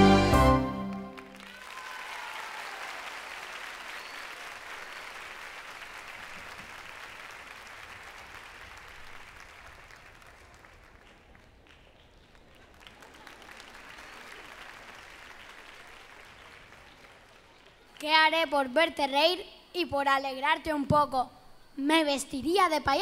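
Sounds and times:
audience applauding: 0.0 - 18.1.

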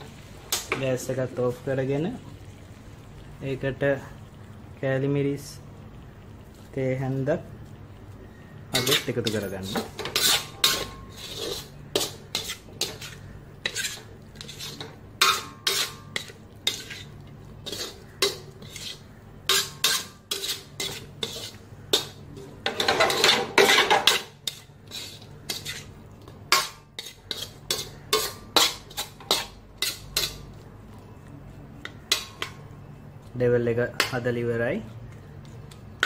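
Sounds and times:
metal spatula scraping a wok: 8.8 - 30.4.

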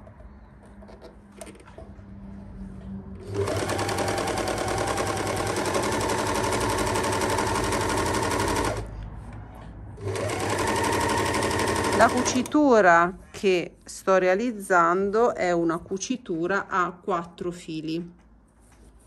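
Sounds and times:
overlocker sewing at speed: 3.2 - 8.9, 10.0 - 12.6.

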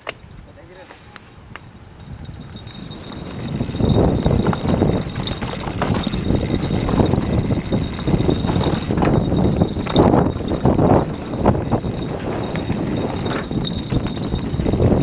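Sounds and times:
bike tyres rumbling over dirt: 1.9 - 15.0
bike clattering and knocking: 2.3 - 15.0.

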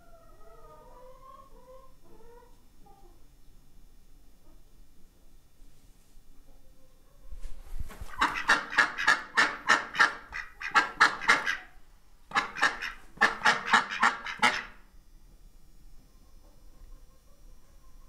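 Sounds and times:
ducks quacking: 8.1 - 14.8.

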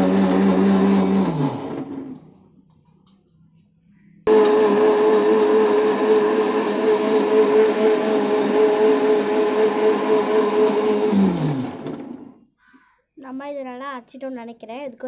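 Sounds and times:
mixer grinder whirring: 0.0 - 2.3, 4.3 - 12.4.

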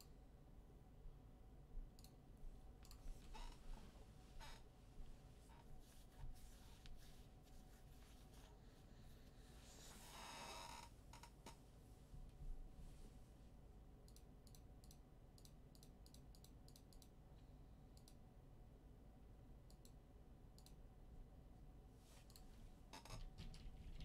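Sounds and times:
computer keys clicking: 14.1 - 17.2, 18.0 - 18.2, 20.6 - 20.8.

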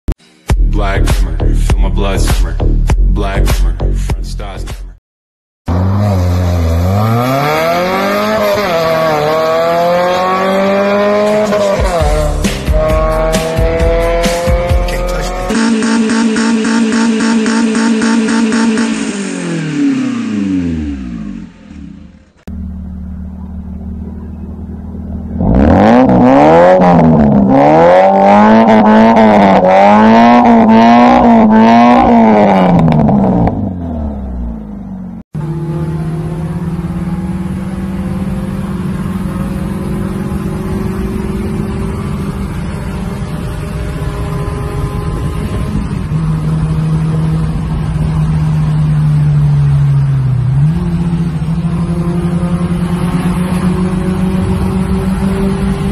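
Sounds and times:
car engine revving and idling: 5.7 - 55.9
deep car engine idling: 20.9 - 26.0.

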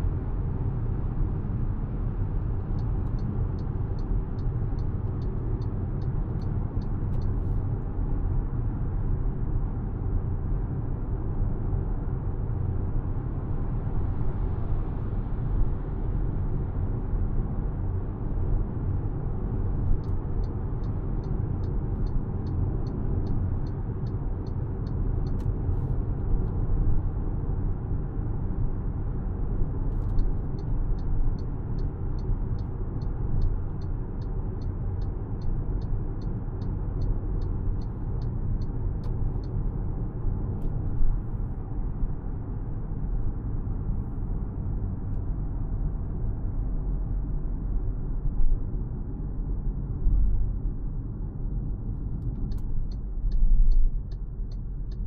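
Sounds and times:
road and engine rumble: 0.0 - 55.0
turn signal ticking: 2.6 - 7.4, 19.8 - 25.6, 30.0 - 39.7, 52.1 - 55.0.

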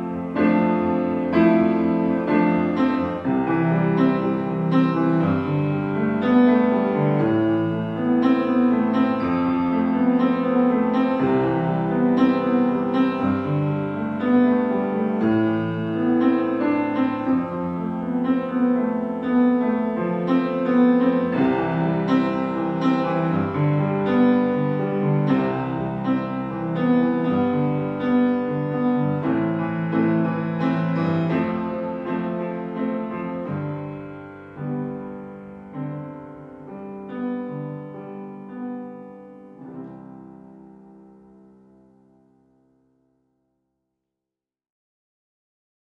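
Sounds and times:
piano music: 0.0 - 43.1.

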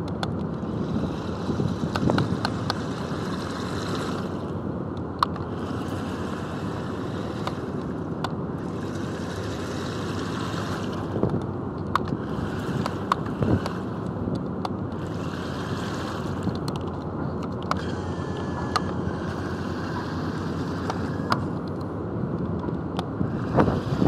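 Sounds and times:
toy car motor whirring: 12.1 - 14.2, 17.6 - 21.9, 23.2 - 24.0.

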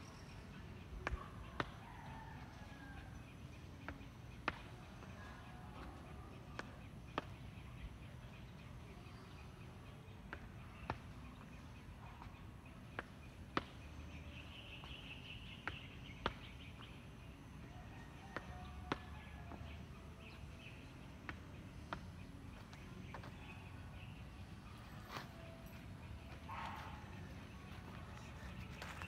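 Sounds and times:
sneaker footfalls on concrete: 3.8 - 7.4.

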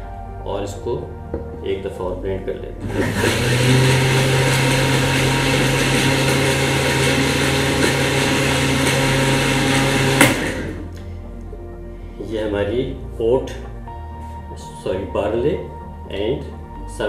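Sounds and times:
electric blender running: 2.8 - 10.9.

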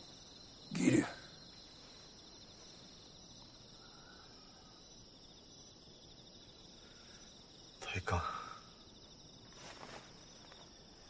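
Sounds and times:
faint crickets chirping: 0.0 - 11.0.

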